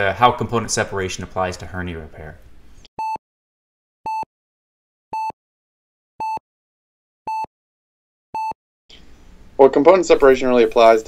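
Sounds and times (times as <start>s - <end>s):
heart monitor beeping: 3.0s - 3.2s, 4.1s - 4.3s, 5.1s - 5.4s, 6.2s - 6.4s, 7.3s - 7.5s, 8.4s - 8.6s.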